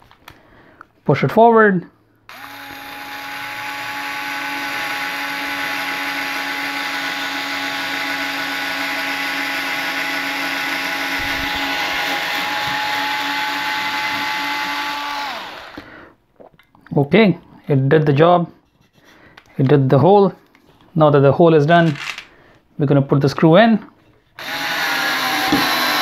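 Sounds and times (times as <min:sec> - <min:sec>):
electric screwdriver whining: 0:02.3 - 0:15.9, 0:21.9 - 0:22.3, 0:24.4 - 0:26.0.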